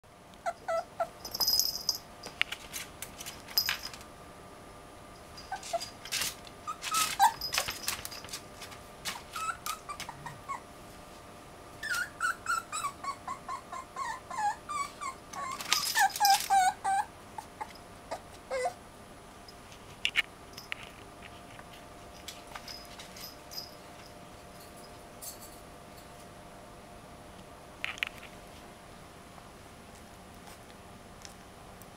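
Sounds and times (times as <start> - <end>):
puppy whining and yelping: 0.4 - 1.5, 5.4 - 7.8, 9.1 - 10.7, 11.8 - 18.8.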